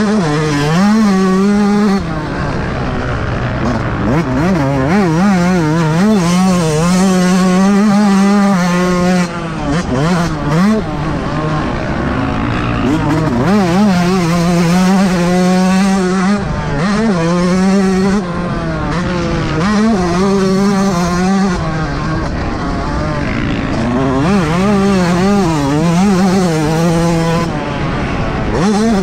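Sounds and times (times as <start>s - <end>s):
motocross engine revving: 0.0s - 29.0s.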